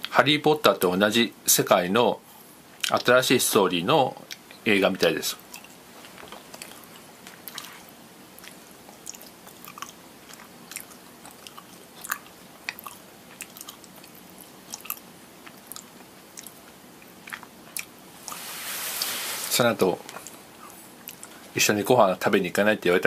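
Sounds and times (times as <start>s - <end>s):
person chewing: 5.5s - 19.1s, 20.1s - 21.4s.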